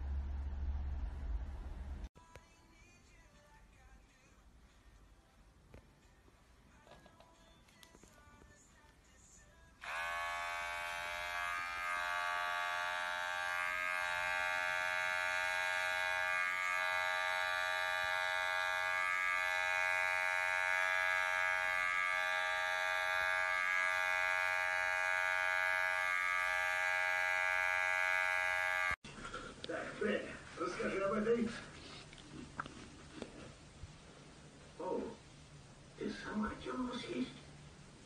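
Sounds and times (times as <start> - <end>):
electric hair clippers buzzing: 9.8 - 29.0.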